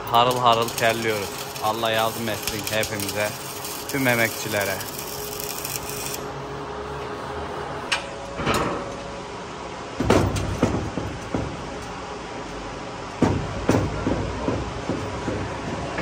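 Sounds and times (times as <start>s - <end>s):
steady background noise: 0.0s - 16.0s
bangs on steel tailgate: 10.0s - 11.6s.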